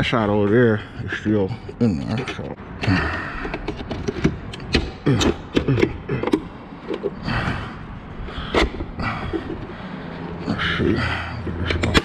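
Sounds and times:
plastic clips clicking and knocking: 3.4s - 7.2s.

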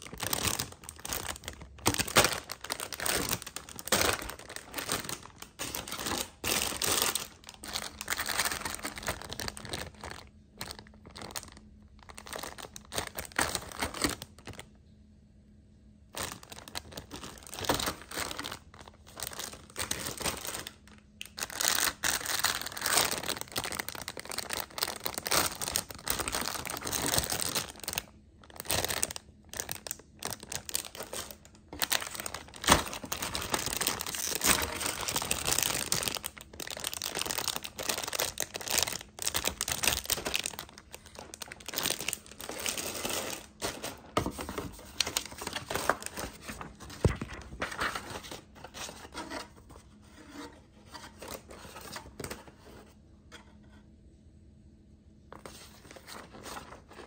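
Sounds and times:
plastic bags crinkling: 0.0s - 14.7s, 16.1s - 49.7s.

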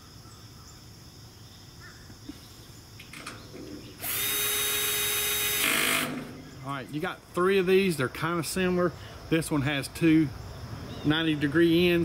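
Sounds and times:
cordless drill whining: 4.0s - 6.4s.

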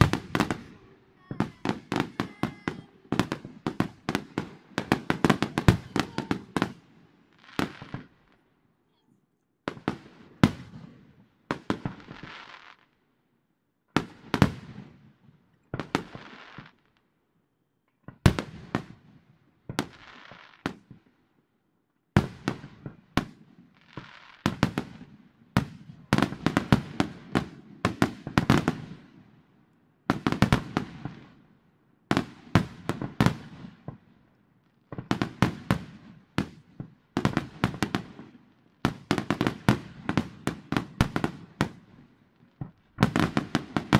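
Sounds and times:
fireworks bursting: 0.0s - 9.0s, 9.6s - 12.9s, 34.9s - 43.9s.

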